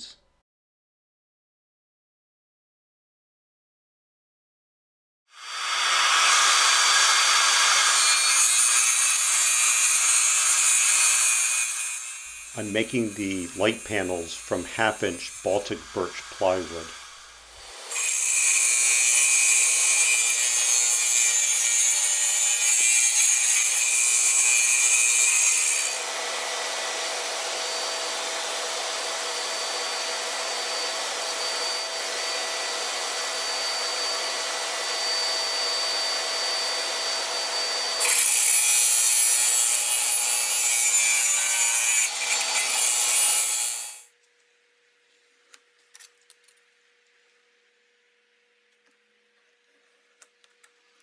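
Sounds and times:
radial arm saw cutting plywood: 5.4 - 44.1.

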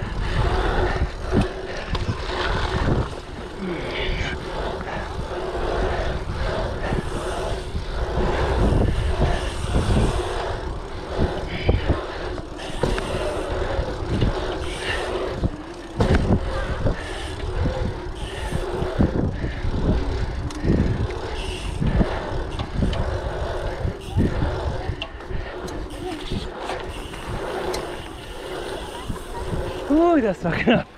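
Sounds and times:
bike knocking and rattling: 0.0 - 30.9
tyres humming on tarmac: 0.0 - 30.9
wind buffeting microphone: 0.0 - 30.9.

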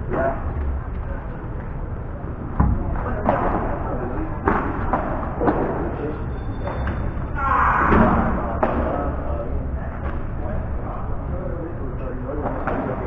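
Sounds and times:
ball hitting rackets: 7.9 - 9.2.

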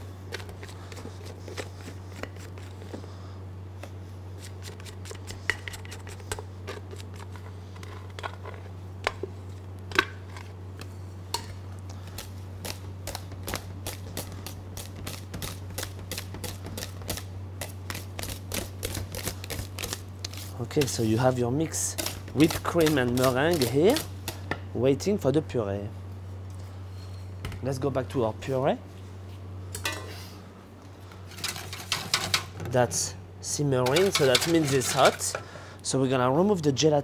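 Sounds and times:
steady low hum: 0.0 - 37.0
whisk tapping metal bowl: 21.9 - 24.1, 31.4 - 32.5, 33.8 - 35.4.

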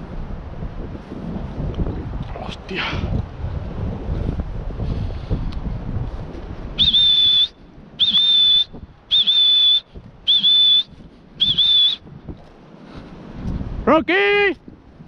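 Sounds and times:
dog whistle blasts: 6.8 - 12.0.

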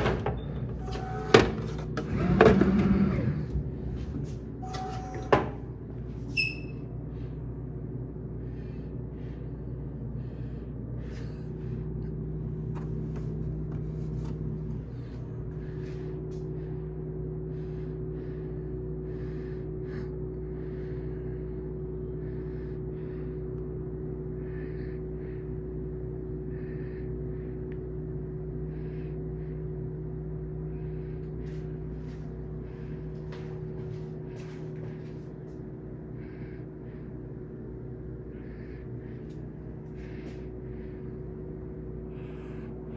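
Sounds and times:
vending machine humming: 0.0 - 42.9.

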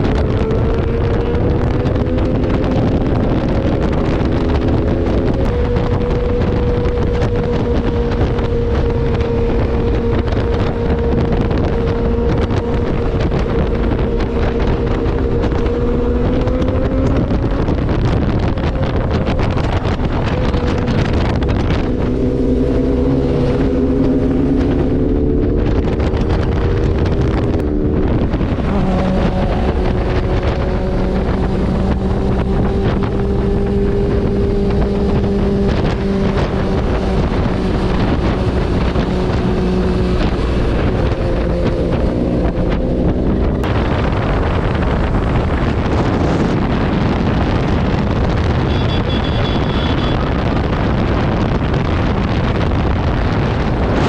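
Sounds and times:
motorcycle engine running: 0.0 - 54.0
wind rushing over microphone: 0.0 - 54.0.

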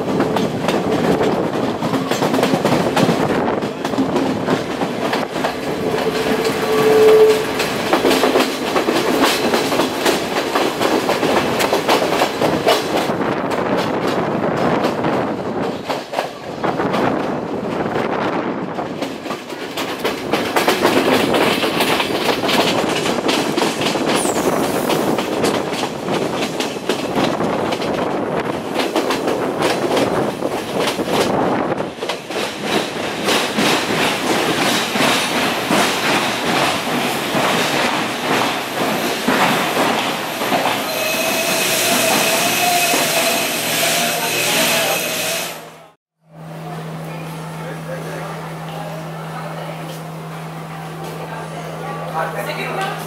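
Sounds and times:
train wheels clattering: 0.0 - 18.0, 18.7 - 45.6
steady squeal: 5.7 - 7.6, 40.2 - 45.7.

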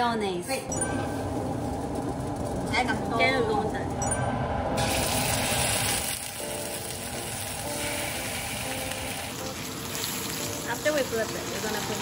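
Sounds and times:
steaks sizzling in frying pan: 4.8 - 12.0.

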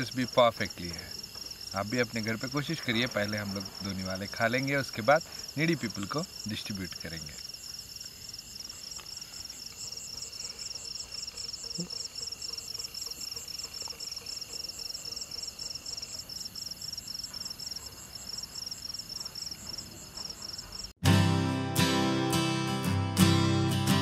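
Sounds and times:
crickets chirping: 0.0 - 21.0
strummed acoustic guitar music: 21.0 - 24.0.

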